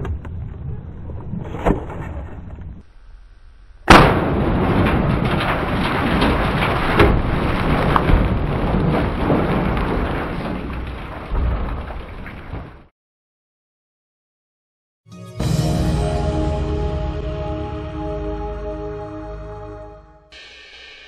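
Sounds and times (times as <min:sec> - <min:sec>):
sharp crack: 0:03.8 - 0:12.6
thunder rumble: 0:03.9 - 0:12.8
thunderclap: 0:03.9 - 0:12.9.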